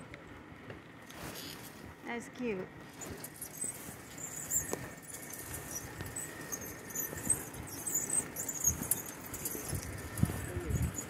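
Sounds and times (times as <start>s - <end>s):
bicycle rattling and clicking: 2.8s - 11.0s.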